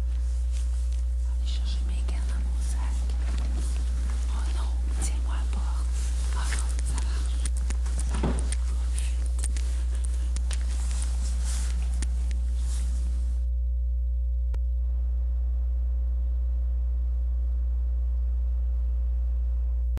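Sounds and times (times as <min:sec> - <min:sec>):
background hiss: 0:00.0 - 0:13.4
faint rustling: 0:00.0 - 0:13.4
low electrical hum: 0:00.0 - 0:20.0.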